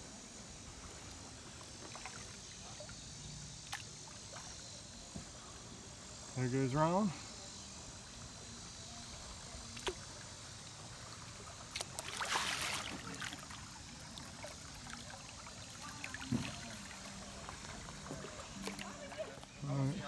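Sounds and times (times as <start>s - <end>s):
creek water trickling: 0.0s - 20.0s
water splashing: 1.0s - 4.7s, 9.3s - 20.0s.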